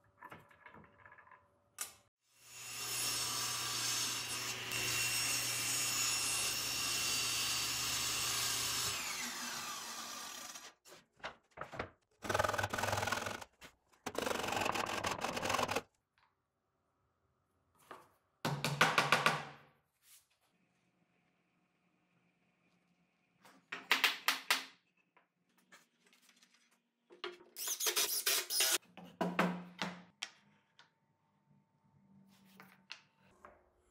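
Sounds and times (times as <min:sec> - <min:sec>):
table saw running: 0:02.5 - 0:10.8.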